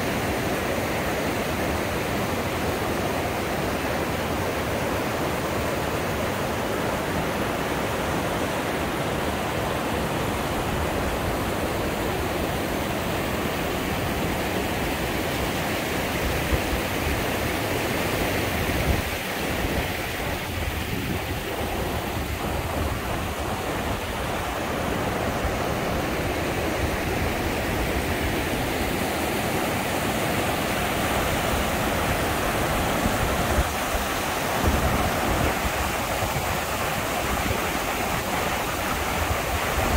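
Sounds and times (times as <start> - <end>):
creek rapids rushing over rocks: 0.0 - 39.9.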